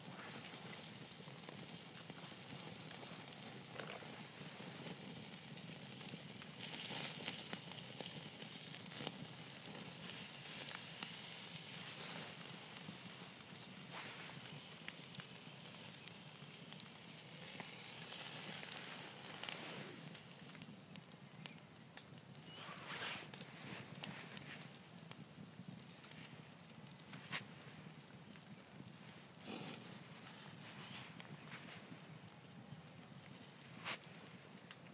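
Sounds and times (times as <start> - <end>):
pops and crackles: 0.1 - 5.0, 6.0 - 15.3, 17.4 - 34.9
bacon sizzling: 5.3 - 20.9.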